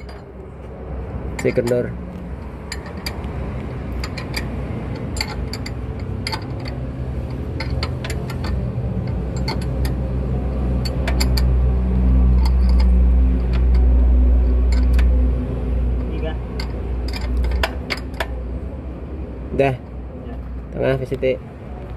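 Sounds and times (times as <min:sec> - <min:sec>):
low mechanical hum: 0:00.0 - 0:20.9
clicks and knocks of drive belt: 0:01.3 - 0:10.0, 0:16.0 - 0:18.4.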